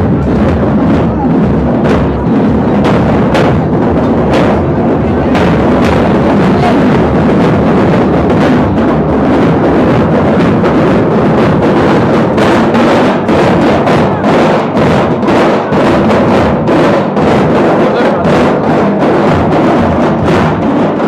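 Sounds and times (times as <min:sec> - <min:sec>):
large drums beaten in rhythm: 0:00.0 - 0:21.0.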